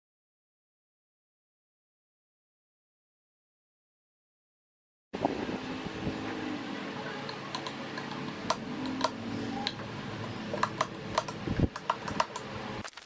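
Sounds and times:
steady low hum: 0:05.2 - 0:12.9.

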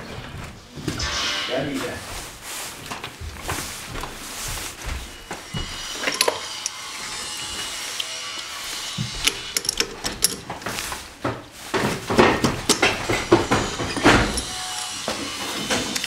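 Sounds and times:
metal clatter: 0:08.9 - 0:10.8, 0:12.0 - 0:14.8.

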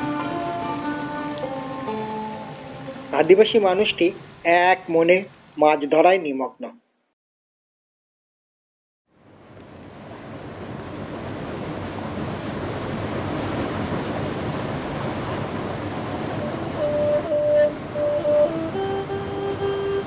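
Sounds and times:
held musical notes: 0:00.0 - 0:04.1, 0:16.4 - 0:20.0
water rushing over rocks: 0:00.0 - 0:06.0, 0:09.2 - 0:20.0.

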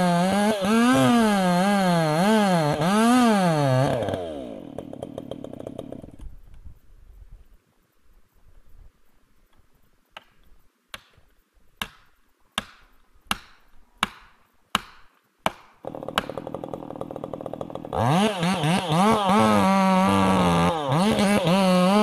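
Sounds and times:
chainsaw running and revving: 0:00.0 - 0:06.2, 0:15.8 - 0:22.0
tool striking wood: 0:11.8 - 0:16.5.

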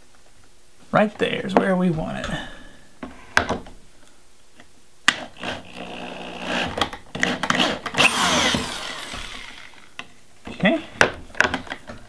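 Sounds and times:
cordless drill driving fasteners: 0:05.1 - 0:10.0.

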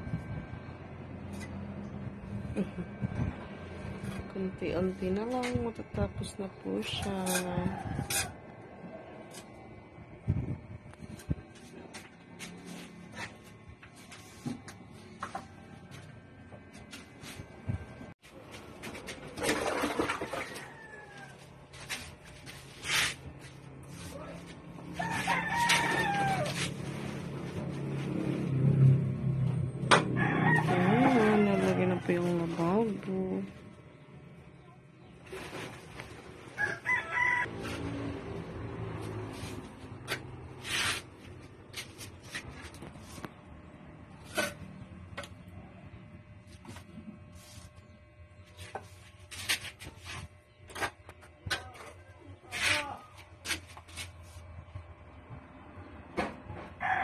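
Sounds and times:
steady low hum: 0:00.0 - 0:20.0, 0:21.2 - 0:56.8
scraping wet cement: 0:18.8 - 0:28.2, 0:39.2 - 0:43.3, 0:48.5 - 0:54.4.

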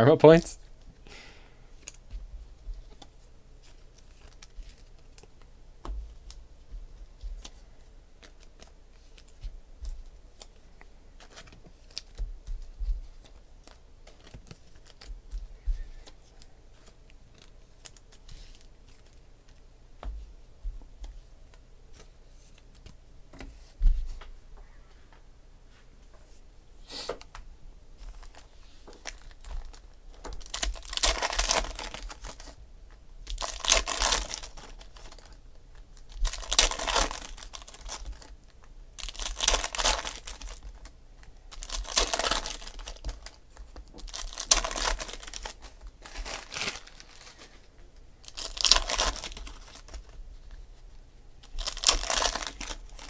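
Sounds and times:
trading cards and wrappers handled: 0:01.7 - 0:05.5, 0:07.1 - 0:19.6, 0:28.0 - 0:53.0.

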